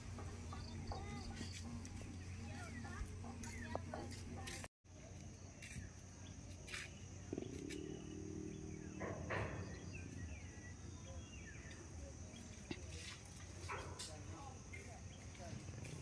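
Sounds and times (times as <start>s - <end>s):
insects buzzing: 0.0s - 16.0s.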